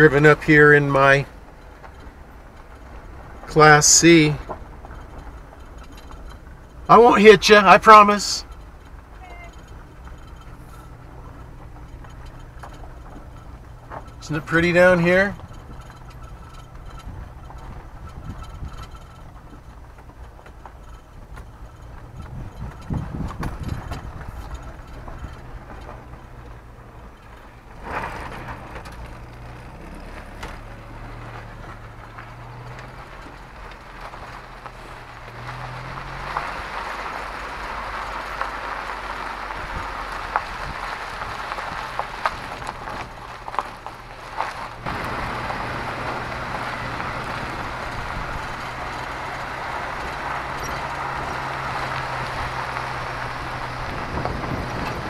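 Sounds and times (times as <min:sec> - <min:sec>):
engine hum: 0:00.0 - 0:55.0
tyre and road noise: 0:00.0 - 0:55.0.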